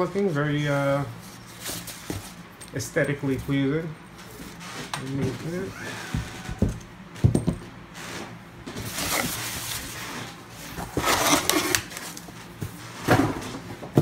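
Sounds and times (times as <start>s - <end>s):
paper rustling and scraping: 8.0s - 13.2s.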